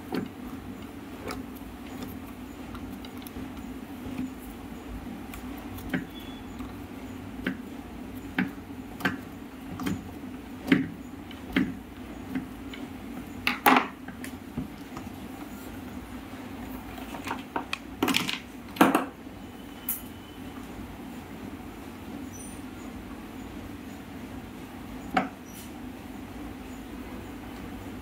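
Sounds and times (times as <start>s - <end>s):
steady low hum: 0.0s - 28.0s
plastic parts clicking and knocking: 17.1s - 19.1s.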